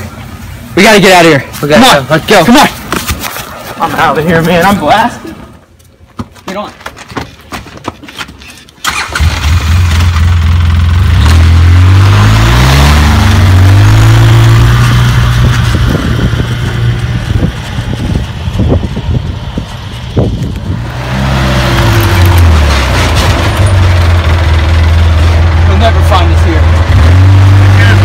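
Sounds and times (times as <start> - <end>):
utility vehicle engine: 8.8 - 28.0.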